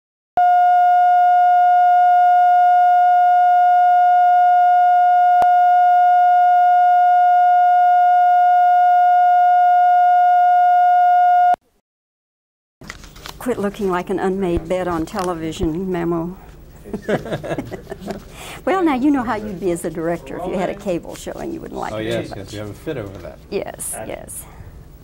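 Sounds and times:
steady test tone: 0.4s - 11.6s.

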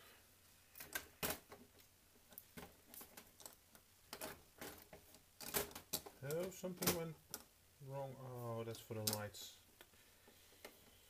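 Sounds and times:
light clicks of metal model: 9.0s - 9.9s.

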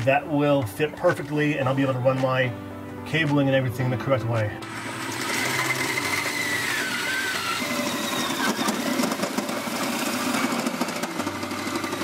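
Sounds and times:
electric drill motor whining: 4.6s - 12.0s
hole saw grinding through metal: 4.6s - 12.0s.

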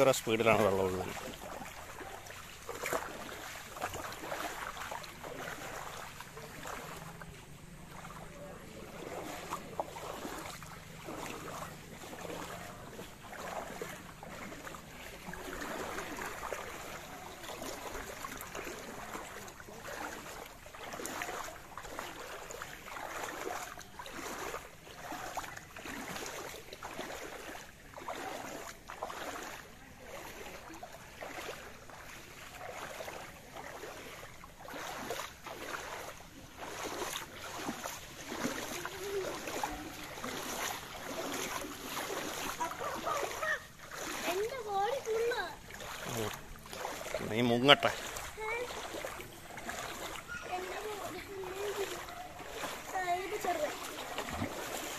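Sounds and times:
floodwater rushing and splashing: 0.0s - 54.9s.

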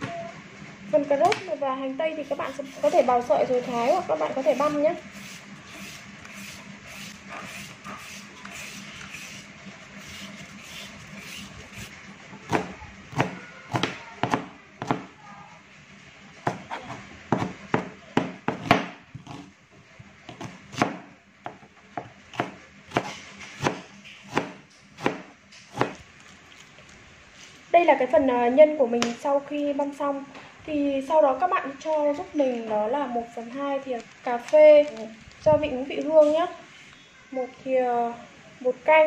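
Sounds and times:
peeler rasping along carrot: 2.2s - 11.9s
knife chopping on plastic board: 12.5s - 15.1s, 16.5s - 19.5s, 22.3s - 26.0s.

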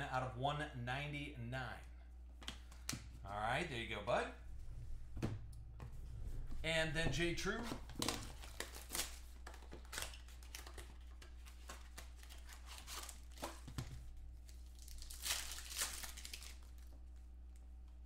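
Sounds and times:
plastic wrapping tearing and crinkling: 8.0s - 13.6s, 14.4s - 16.9s.

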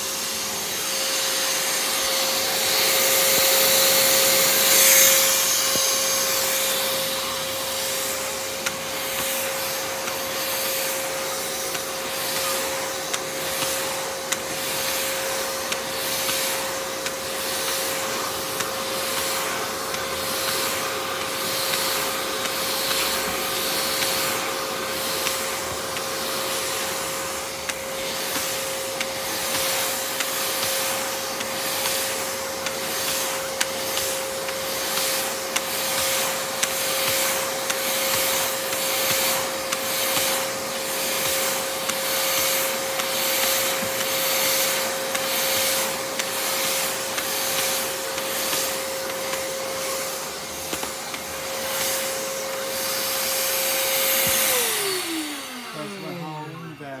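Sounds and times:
vacuum cleaner on carpet: 0.0s - 57.0s.

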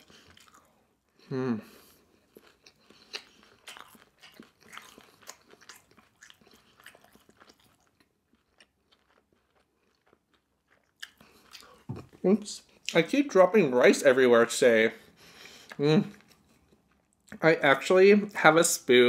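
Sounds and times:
wet crunchy chewing: 0.0s - 0.8s, 2.2s - 12.2s.

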